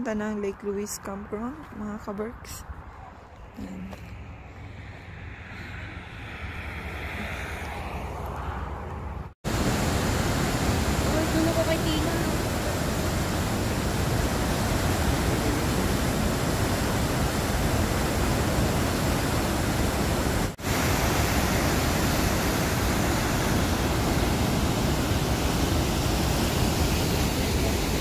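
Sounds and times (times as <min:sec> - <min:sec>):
waterfall roaring: 0:09.5 - 0:28.0.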